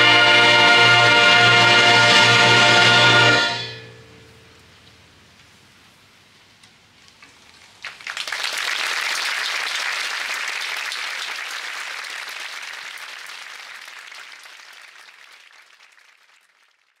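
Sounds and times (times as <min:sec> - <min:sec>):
concert audience applauding: 0:07.7 - 0:17.0.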